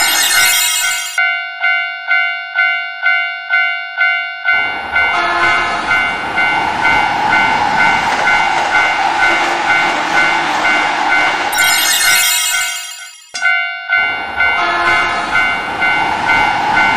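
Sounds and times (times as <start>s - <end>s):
crossing warning bell dinging: 0.0s - 16.9s
train rumbling past: 4.6s - 11.5s, 14.1s - 16.9s.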